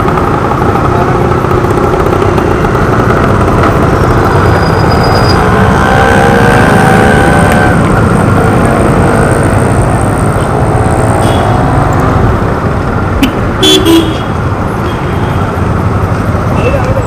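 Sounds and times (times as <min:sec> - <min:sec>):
motorcycle engine: 0:00.0 - 0:17.0
road noise: 0:00.0 - 0:17.0
vehicle horn toot: 0:13.2 - 0:15.5.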